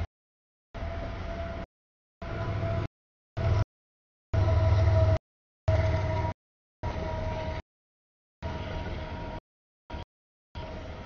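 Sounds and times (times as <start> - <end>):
freight train rumbling past: 0.8 - 3.7, 4.3 - 7.6, 8.4 - 10.0, 10.6 - 11.0.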